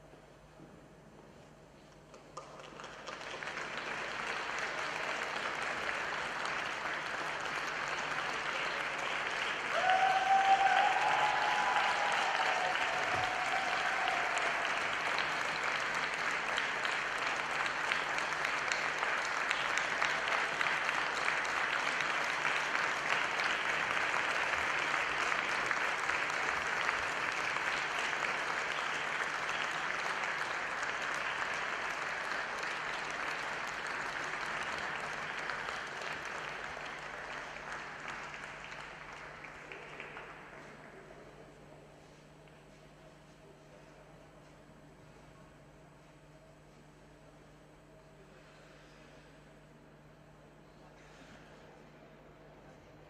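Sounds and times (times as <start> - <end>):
audience applauding: 2.4 - 41.1.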